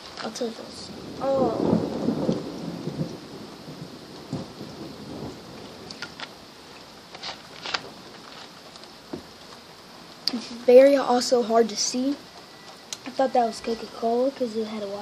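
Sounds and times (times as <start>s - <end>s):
thunder rumble: 0.0s - 8.3s
steady rain: 0.0s - 15.0s.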